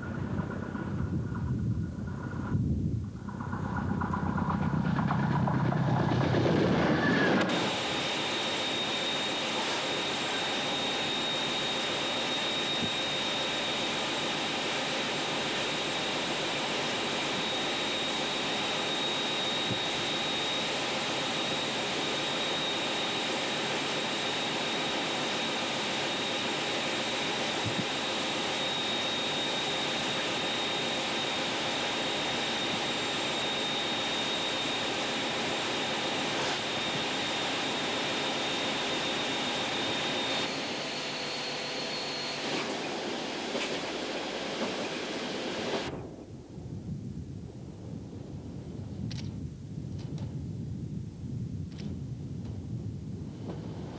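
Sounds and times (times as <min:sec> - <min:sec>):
train running noise: 0:00.0 - 0:08.0, 0:39.2 - 0:46.0
thin high whine: 0:00.0 - 0:47.0.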